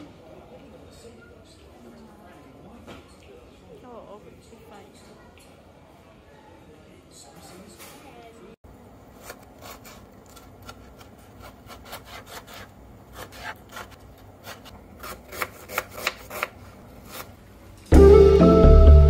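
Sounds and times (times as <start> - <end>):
knife chopping on cutting board: 9.2 - 17.3
loud music: 17.9 - 19.0.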